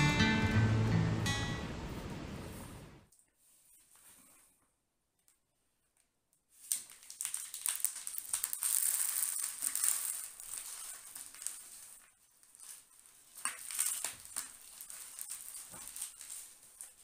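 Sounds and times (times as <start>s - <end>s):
gravelly soil spilling onto plastic: 6.6s - 12.0s.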